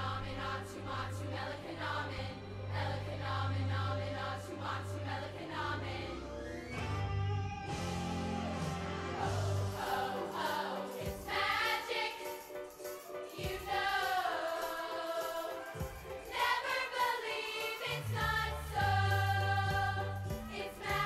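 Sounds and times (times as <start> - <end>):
women's chorus singing in harmony: 0.0 - 6.6, 8.8 - 21.0.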